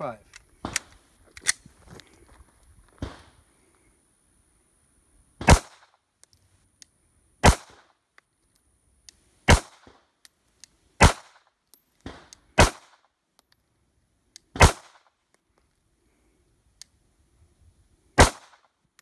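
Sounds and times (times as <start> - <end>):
pistol shots: 5.4 - 5.9, 7.4 - 7.9, 9.5 - 10.0, 11.0 - 11.4, 12.0 - 13.0, 14.5 - 15.1, 18.2 - 18.7.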